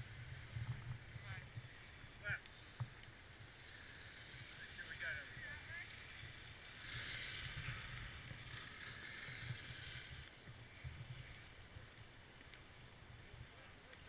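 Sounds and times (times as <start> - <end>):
wind rumble on microphone: 0.0 - 2.2
snowboard hissing on snow: 6.6 - 10.2.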